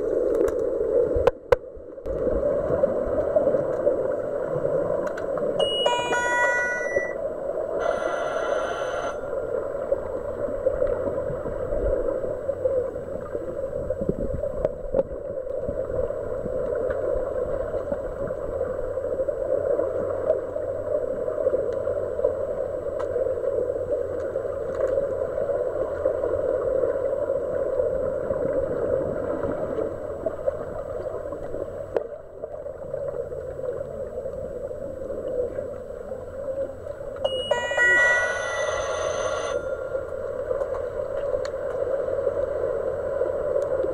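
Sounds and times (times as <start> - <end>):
underwater rush of water and bubbles: 0.0 - 6.2, 7.0 - 37.2
electronic beep: 5.6 - 7.2, 7.8 - 9.3, 37.3 - 40.0.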